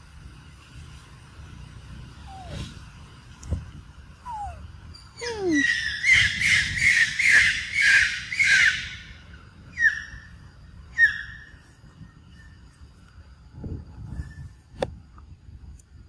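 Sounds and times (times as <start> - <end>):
shrill animal calls: 4.3 - 11.6.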